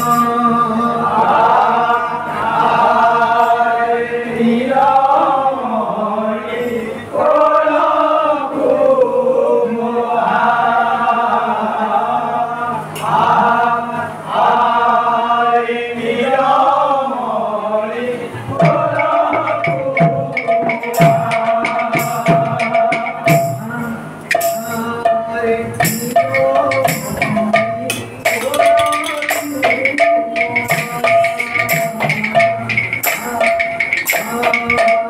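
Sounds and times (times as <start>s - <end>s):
barrel drums and percussion: 0.0s - 0.4s, 18.5s - 35.0s
men singing a devotional chant: 0.0s - 35.0s.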